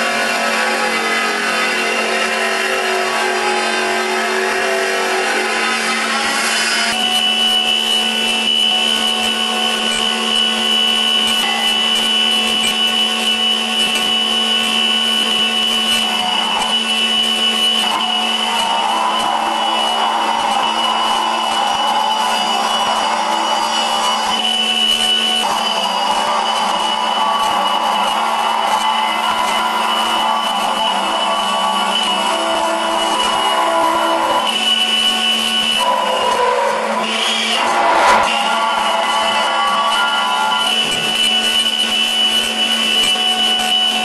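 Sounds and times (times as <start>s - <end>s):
burr grinding high whine: 0.0s - 44.0s
abrasive disc grinding metal: 8.5s - 43.6s.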